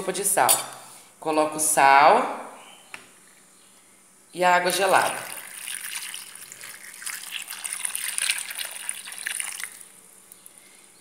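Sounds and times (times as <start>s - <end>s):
water pouring into a glass bowl: 4.7s - 9.9s.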